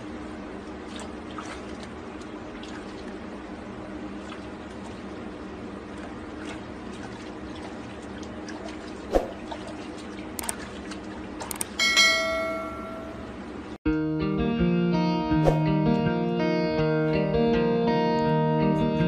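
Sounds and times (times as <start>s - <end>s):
water running into bathtub: 0.7s - 11.8s.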